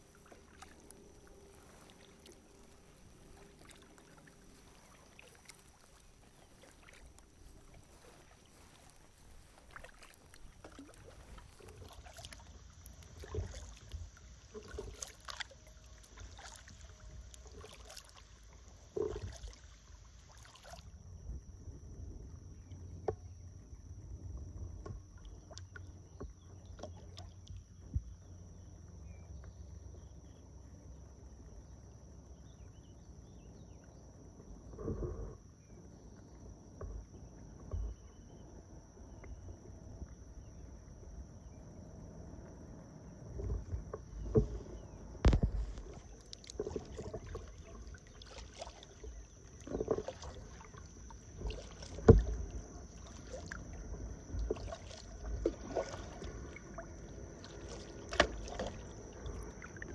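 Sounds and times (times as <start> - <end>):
kayak paddle splashing in water: 0.0 - 20.9, 43.3 - 59.9.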